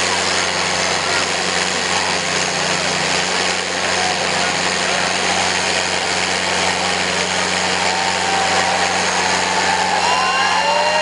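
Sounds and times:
diesel tractor engines under load: 0.0s - 11.0s
gliding whistle-like tones: 8.0s - 11.0s.

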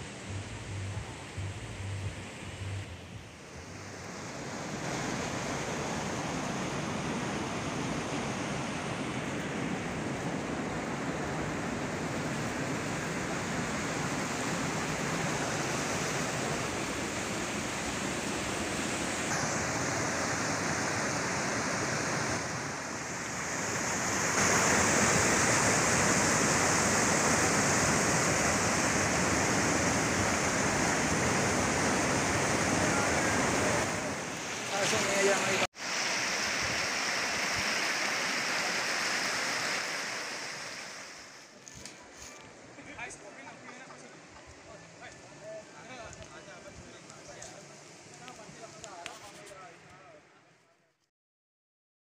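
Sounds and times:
river rushing over rocks: 3.2s - 41.5s.

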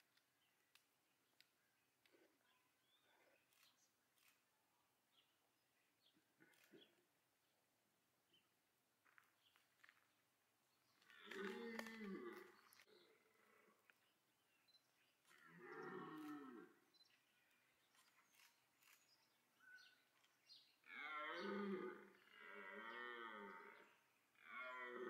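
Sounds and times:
deer stag roaring: 11.2s - 12.5s, 15.5s - 16.7s.

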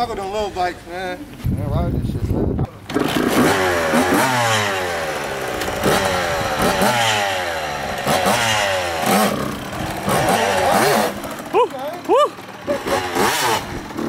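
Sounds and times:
dirt bike engine revving: 2.8s - 14.0s.

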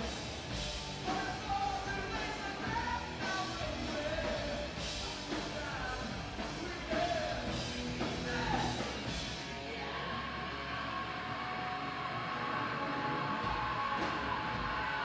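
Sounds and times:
drums with cymbals: 0.0s - 9.5s
bass guitar: 0.0s - 15.0s
distorted electric guitars: 0.0s - 15.0s.

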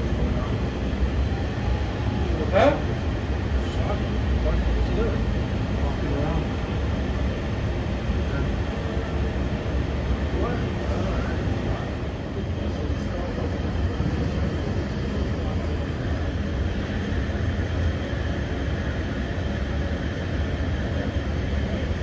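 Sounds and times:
city background rumble: 0.0s - 22.0s.

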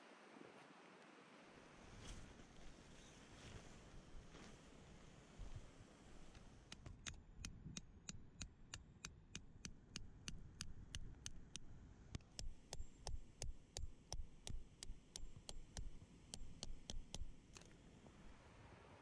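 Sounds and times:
hammer striking metal tent peg: 12.2s - 17.4s.

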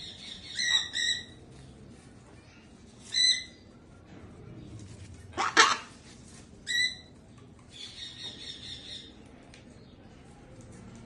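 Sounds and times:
cockatoo buzzy chatter: 5.2s - 6.1s
cockatoo squawking: 5.3s - 6.0s.

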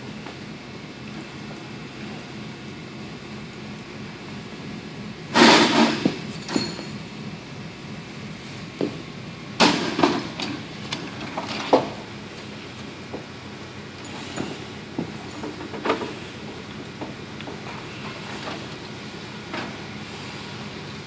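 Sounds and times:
short metallic clink: 6.4s - 7.0s.

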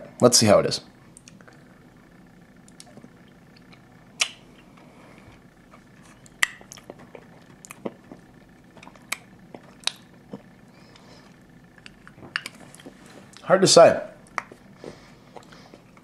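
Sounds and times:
sharp mouth clicks: 2.7s - 4.4s
chewing toffee: 2.7s - 13.4s, 14.2s - 16.0s.

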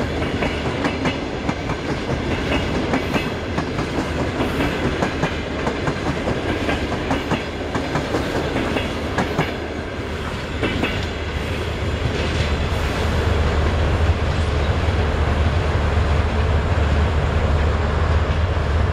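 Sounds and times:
train coaches rolling on rails: 0.0s - 18.9s.

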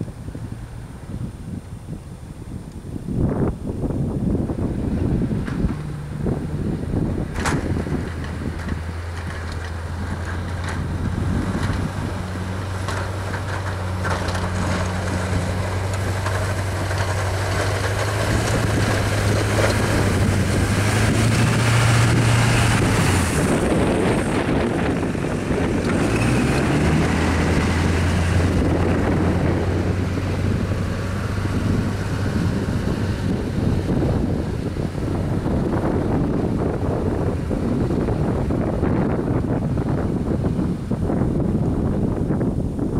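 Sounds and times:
diesel truck engine under load: 0.0s - 42.9s
rushing snow and wind: 0.0s - 42.9s.

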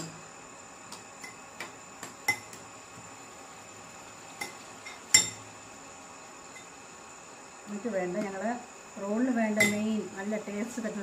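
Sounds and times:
spoon clinking glass bowl: 4.4s - 5.4s.

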